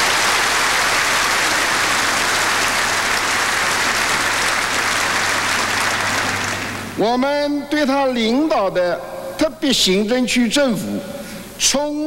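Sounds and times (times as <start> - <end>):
large audience applauding: 0.0 - 7.0.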